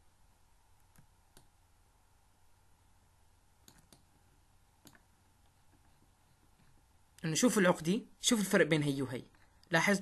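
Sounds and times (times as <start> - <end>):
faint computer mouse clicks: 0.9 - 1.5, 3.6 - 4.1, 4.8 - 5.9.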